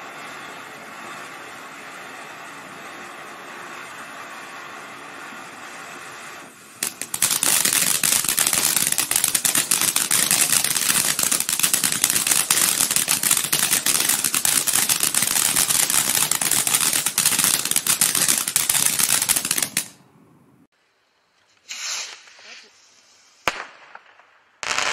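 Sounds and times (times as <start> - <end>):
firework crackling and popping: 0.0 - 20.0, 21.5 - 24.9
firework fountain hissing: 0.0 - 20.0, 21.6 - 23.7.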